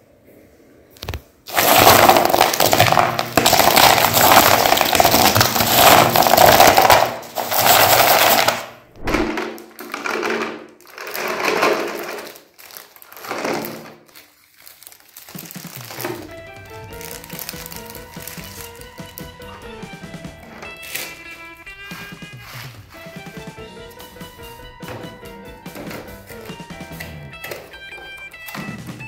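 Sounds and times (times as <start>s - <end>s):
foil-wrapped chocolate bars crinkling: 1.0s - 8.8s, 9.6s - 23.5s.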